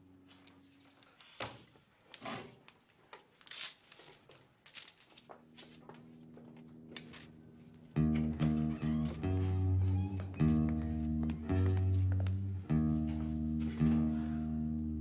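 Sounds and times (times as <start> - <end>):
rustling of books and clothing: 0.3 - 7.8.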